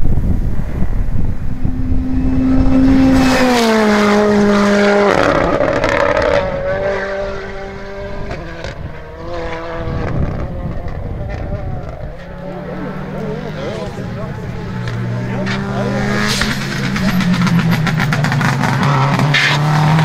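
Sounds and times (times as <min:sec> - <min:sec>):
wind buffeting microphone: 0:00.0 - 0:06.9, 0:07.6 - 0:12.8
rally car engine passing: 0:00.6 - 0:20.0.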